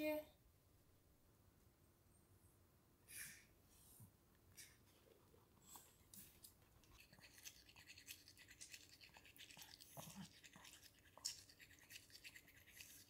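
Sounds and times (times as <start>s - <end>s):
toothbrush scrubbing teeth: 5.8s - 13.0s.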